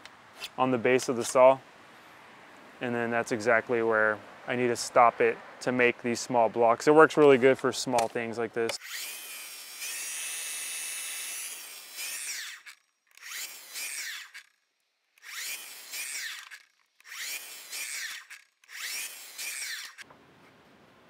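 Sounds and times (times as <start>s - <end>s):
miter saw cutting wood: 8.8s - 14.6s, 15.2s - 20.0s.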